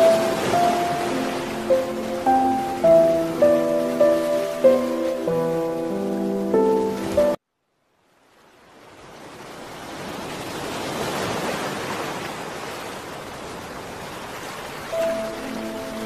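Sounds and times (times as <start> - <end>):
music: 0.0 - 7.4, 15.0 - 16.0
waves washing: 0.0 - 7.4, 8.4 - 16.0.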